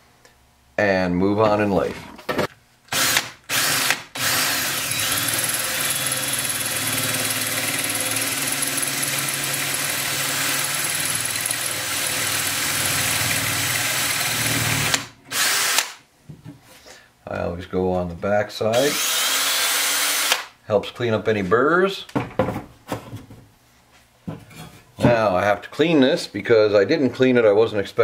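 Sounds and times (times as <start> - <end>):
power drill drilling steel: 2.9 - 16.0, 18.7 - 20.5.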